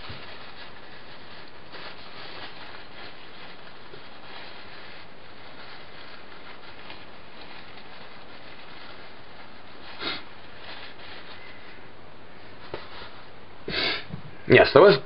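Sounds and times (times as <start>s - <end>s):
steady background hiss: 0.0s - 15.0s
person sniffing: 9.9s - 10.3s, 13.7s - 14.1s.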